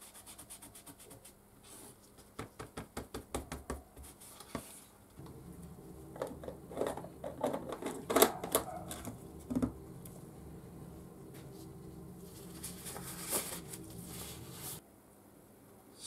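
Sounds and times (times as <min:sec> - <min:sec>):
steady low hum: 0:05.2 - 0:14.8.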